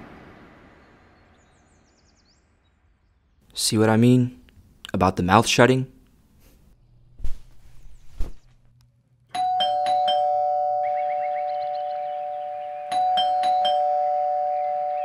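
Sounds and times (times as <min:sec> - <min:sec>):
bell-like chime ringing: 0:09.4 - 0:15.0.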